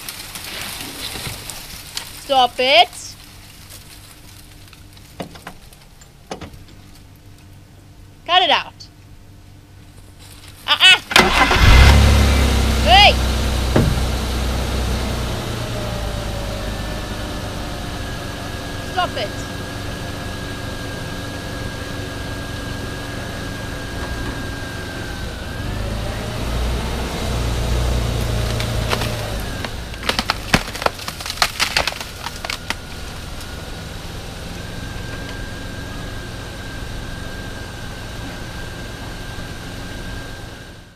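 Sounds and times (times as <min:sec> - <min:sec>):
wood branches cracking and snapping: 0:00.0 - 0:07.6, 0:27.7 - 0:35.5
vehicle engine running: 0:00.0 - 0:40.9.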